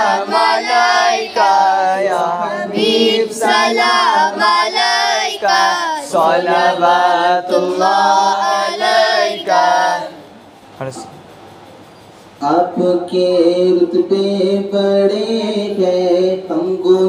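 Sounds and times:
man singing into a microphone: 12.4s - 17.0s.

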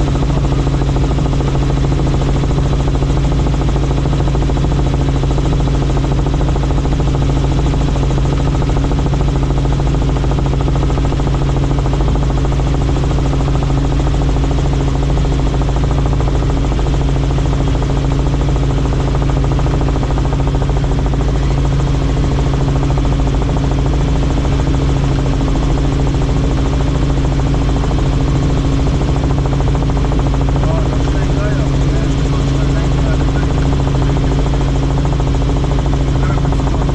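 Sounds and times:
helicopter rotor and engine drone: 0.0s - 36.9s.

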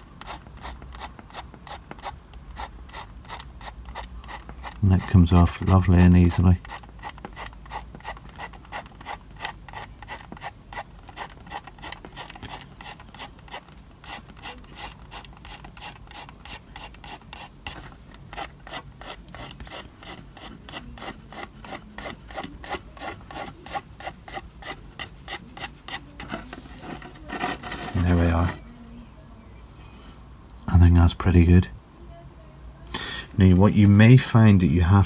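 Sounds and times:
fingertip scraping textured surface: 0.0s - 28.6s.

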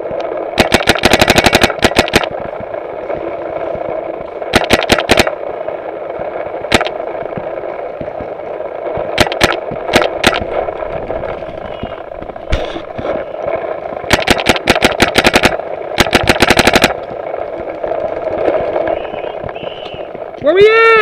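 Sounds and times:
paintball marker shots: 0.6s - 2.4s, 4.5s - 5.4s, 6.7s - 7.0s, 9.1s - 10.5s, 14.1s - 17.0s.

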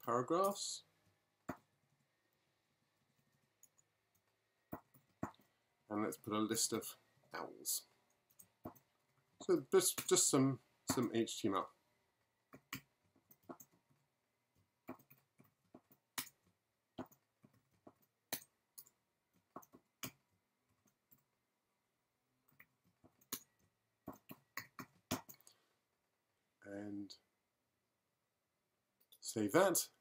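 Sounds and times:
keystrokes on computer keyboard: 3.0s - 5.6s, 8.0s - 10.2s, 10.9s - 11.2s, 12.5s - 21.4s, 22.4s - 25.6s.

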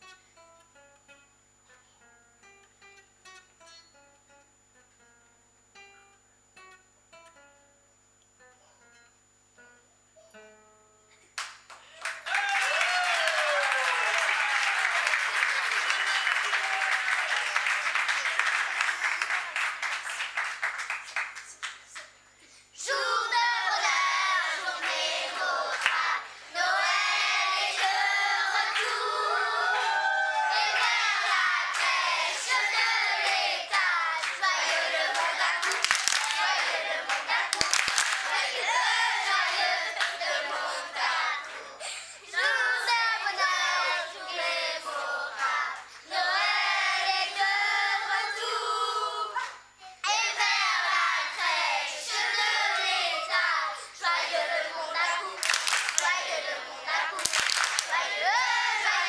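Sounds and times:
children's choir singing: 13.0s - 21.0s, 22.8s - 59.0s.

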